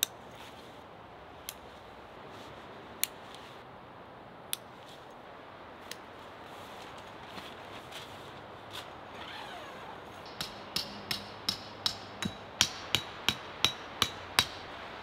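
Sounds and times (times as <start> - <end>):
hammer striking tent stake: 10.2 - 14.7.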